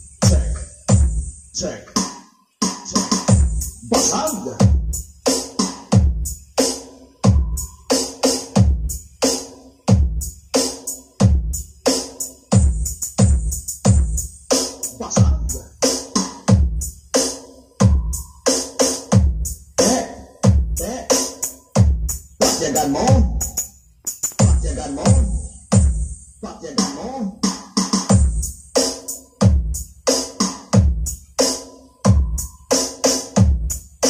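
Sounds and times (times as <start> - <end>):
electronic dance music: 0.0 - 34.0
deep kick drums: 0.2 - 1.2, 12.6 - 14.2, 16.5 - 16.8, 19.1 - 19.5, 20.4 - 20.8, 21.8 - 22.2, 24.4 - 26.1, 29.4 - 29.8, 30.8 - 31.1.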